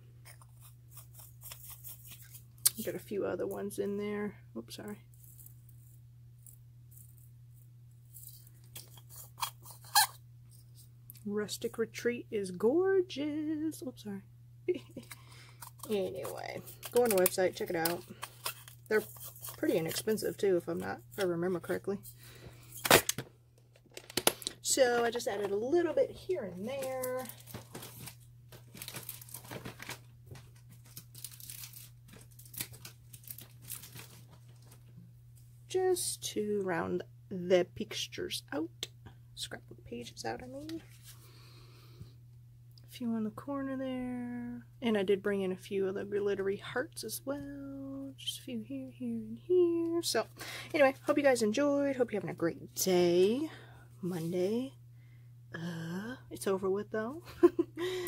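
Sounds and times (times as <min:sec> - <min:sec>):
faint low hum: 0:00.0 - 0:58.0
paper crinkling and rustling: 0:15.7 - 0:20.3, 0:26.6 - 0:34.9.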